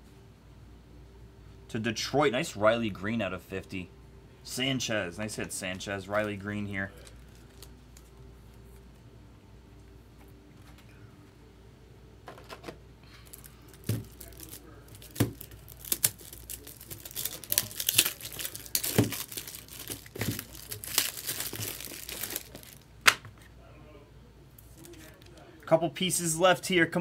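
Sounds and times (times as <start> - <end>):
plastic sleeve crinkling: 5.7 - 8.9, 13.2 - 23.0.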